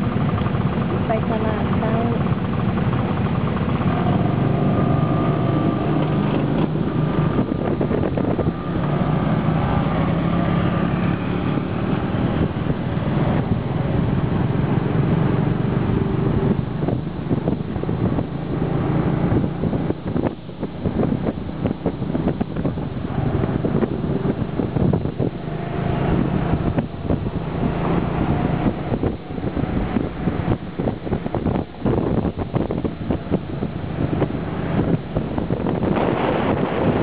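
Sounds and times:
small motorcycle engine: 0.0s - 20.3s
scooter engine running: 0.0s - 37.0s
wind buffeting microphone: 0.0s - 37.0s.

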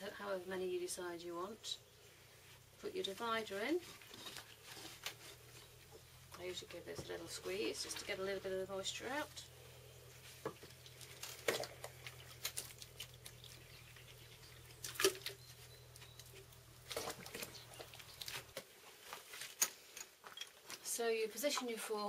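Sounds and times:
low steady hum: 0.0s - 22.0s
wet squelches of packing mix: 10.1s - 19.6s.

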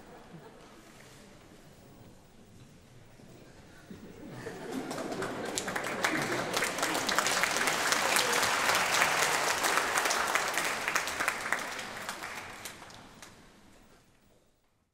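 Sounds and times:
audience applauding: 4.6s - 13.4s.

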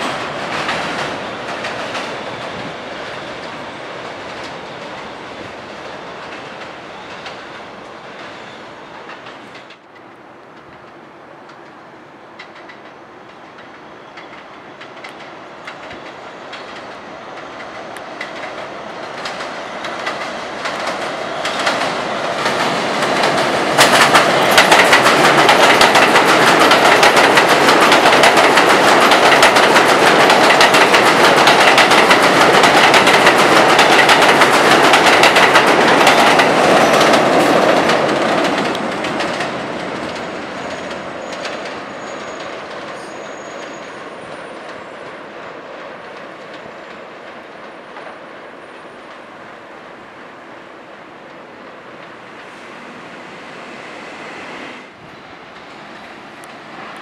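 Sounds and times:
wheels clacking over rail joints: 0.0s - 5.1s, 12.4s - 48.2s
subway train running past: 0.0s - 57.0s.

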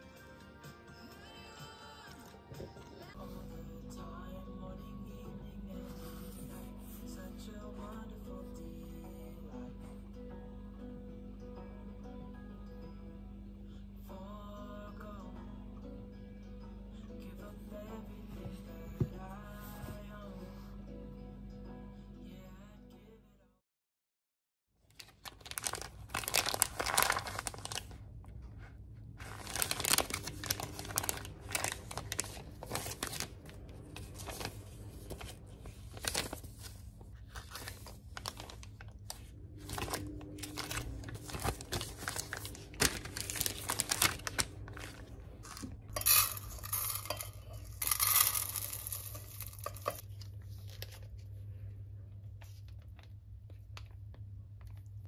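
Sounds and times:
package tearing: 24.9s - 27.9s, 29.2s - 35.2s, 35.9s - 36.5s, 37.4s - 39.0s, 39.6s - 45.7s
packaging crinkling and rustling: 24.9s - 28.0s, 29.2s - 51.2s.

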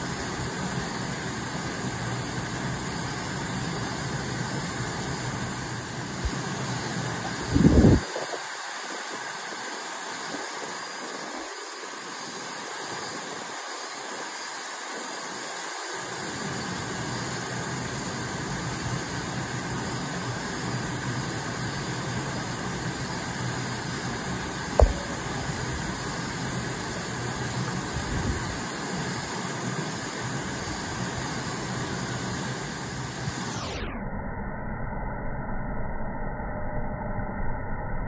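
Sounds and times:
outdoor background hiss: 0.0s - 33.8s
sharp knock: 24.8s - 25.9s.

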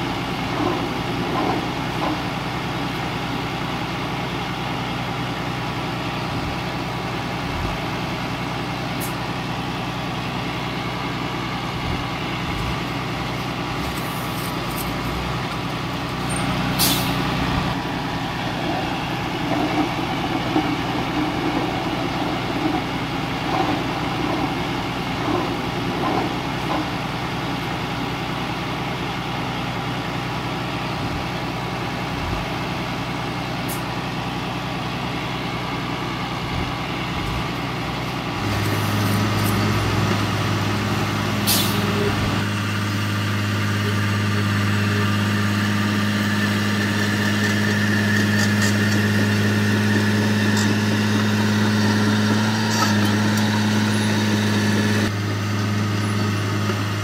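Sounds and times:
diesel engine of heavy machinery: 0.0s - 57.0s
uneven rumbling and knocking: 11.7s - 13.0s, 17.4s - 27.2s, 36.4s - 37.6s.

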